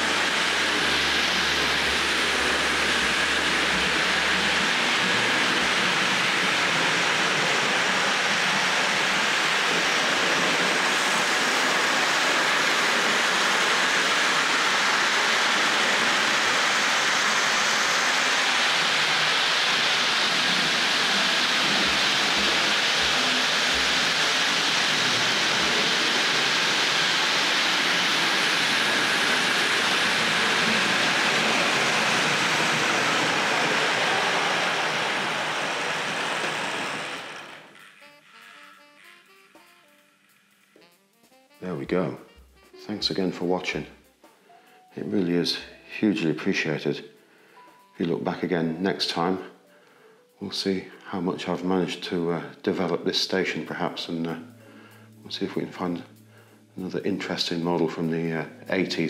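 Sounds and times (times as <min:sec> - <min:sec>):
model train whirring on track: 0:00.0 - 0:41.5.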